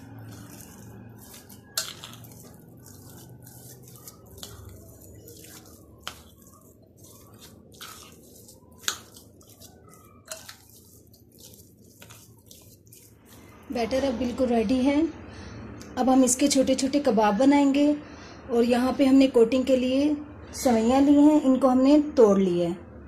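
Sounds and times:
spoon stirring wet batter: 0.0 - 14.8.

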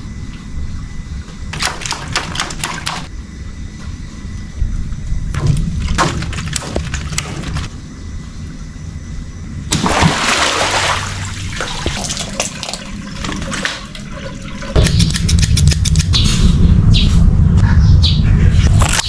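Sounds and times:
water gushing and splashing: 9.7 - 14.8
low rumble: 14.2 - 19.0.

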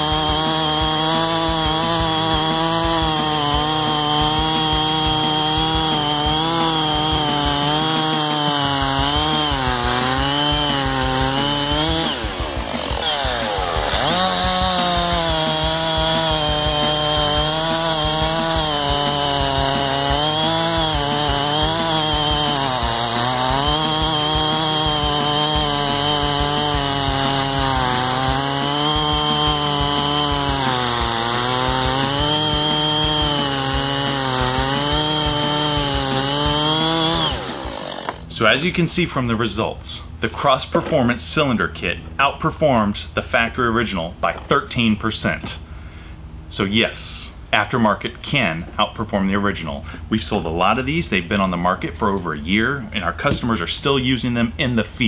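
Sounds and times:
chainsaw cutting wood: 0.0 - 39.1, 50.2 - 54.6.

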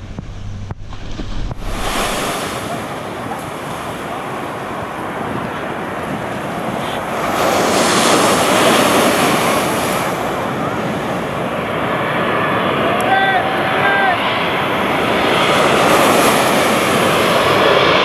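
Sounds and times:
wind buffeting microphone: 0.0 - 11.6
surf washing onto beach: 0.1 - 18.0.

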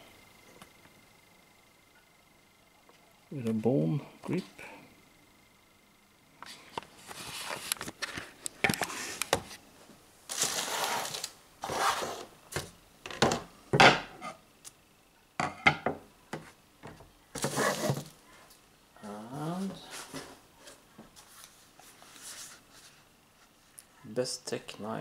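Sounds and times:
cardboard rustles and scrapes: 10.3 - 12.3, 17.4 - 18.2
items clicking and knocking: 12.5 - 14.1.

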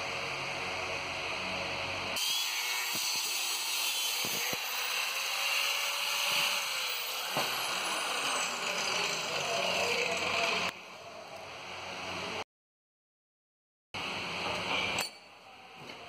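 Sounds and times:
angle grinder cutting metal: 2.2 - 10.8.

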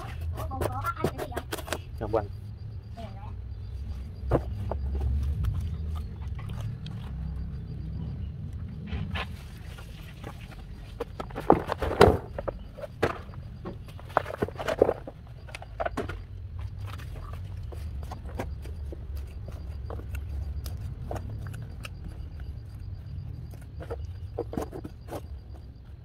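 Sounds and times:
steady low rumble: 1.8 - 26.0.

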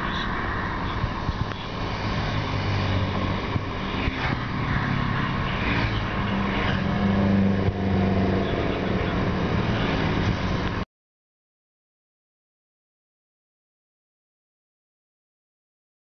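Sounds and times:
hum of tyres and traffic: 0.0 - 10.9
motorbikes passing close by: 0.1 - 10.8.

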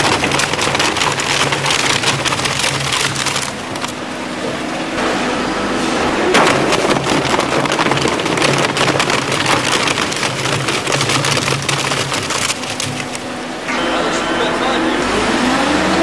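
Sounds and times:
shredder tearing cardboard: 0.0 - 4.1, 6.2 - 13.3
low machine hum: 0.0 - 16.0.

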